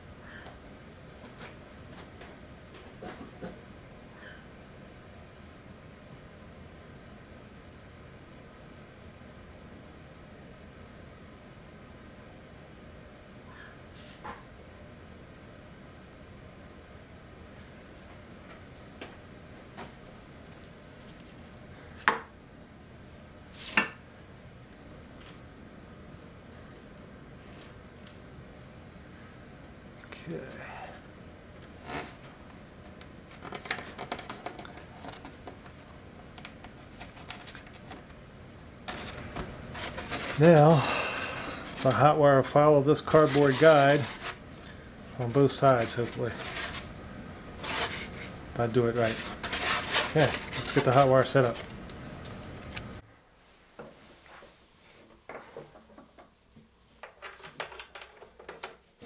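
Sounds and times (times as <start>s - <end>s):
cardboard strips rustling and clicking: 38.9s - 40.7s, 49.0s - 51.8s.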